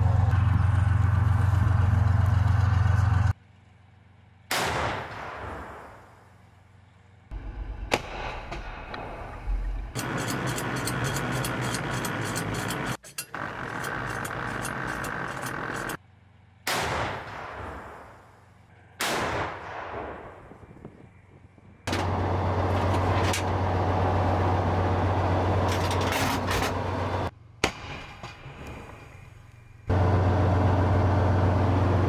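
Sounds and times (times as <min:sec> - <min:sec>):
vehicle engine droning: 0:00.0 - 0:04.5, 0:21.9 - 0:27.6, 0:28.5 - 0:32.0.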